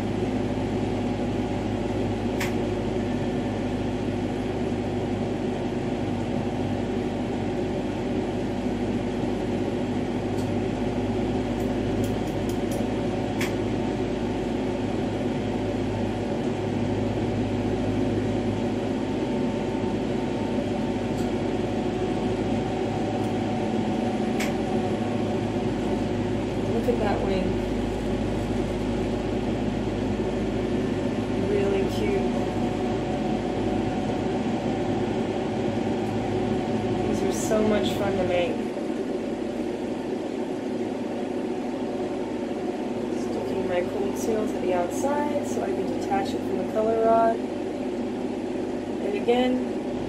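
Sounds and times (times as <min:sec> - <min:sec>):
torch burning hum: 0:00.0 - 0:50.0
ventilation running: 0:00.0 - 0:50.0.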